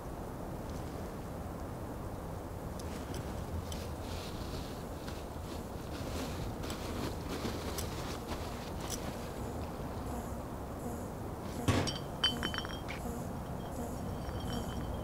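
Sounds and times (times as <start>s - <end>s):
street ambience rumble: 0.0s - 15.0s
sharp knock: 11.6s - 12.2s
ringing clinks: 11.7s - 15.0s.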